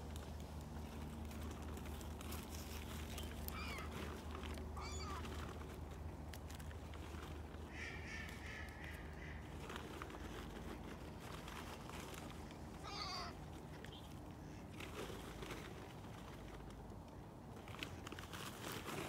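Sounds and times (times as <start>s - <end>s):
gulls calling: 3.1s - 5.8s, 12.7s - 14.1s.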